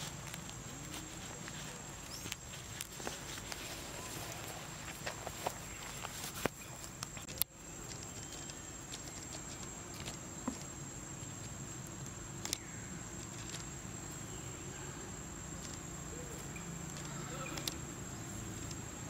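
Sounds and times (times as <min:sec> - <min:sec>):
high-pitched insect drone: 0:07.6 - 0:19.0.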